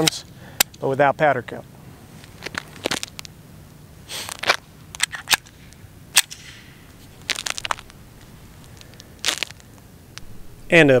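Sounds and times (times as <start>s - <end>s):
pistol metallic clicks: 4.9s - 6.7s.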